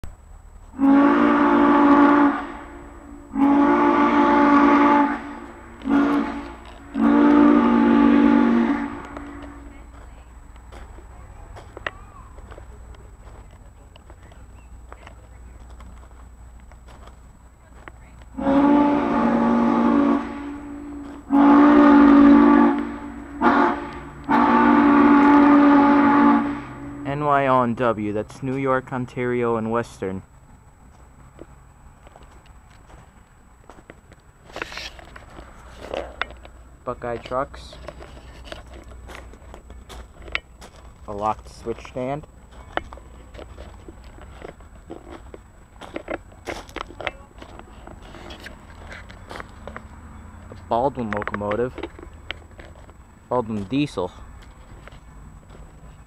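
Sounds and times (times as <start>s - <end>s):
steam locomotive whistle blasts: 0.7s - 9.7s, 18.4s - 27.2s.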